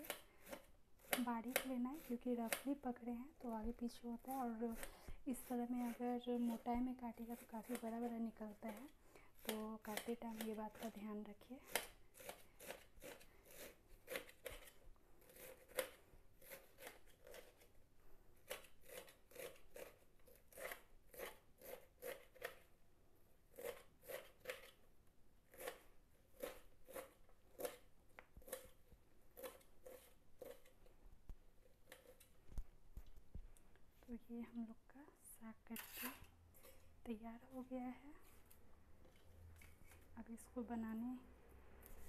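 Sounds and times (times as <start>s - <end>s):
knife slicing leaves: 0.0s - 2.8s, 4.2s - 17.7s, 18.4s - 22.6s, 29.4s - 30.7s.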